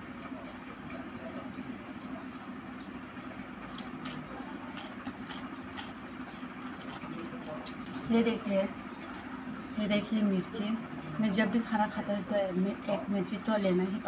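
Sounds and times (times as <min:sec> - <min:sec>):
steady low hum: 0:00.0 - 0:14.0
small bird chirping: 0:00.3 - 0:09.4
soft chewing and mouth clicks: 0:03.6 - 0:08.0, 0:09.0 - 0:09.5.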